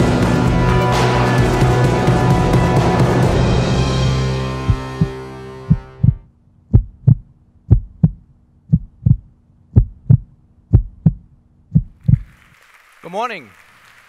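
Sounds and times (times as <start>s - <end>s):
heartbeat thumps: 4.6s - 12.3s.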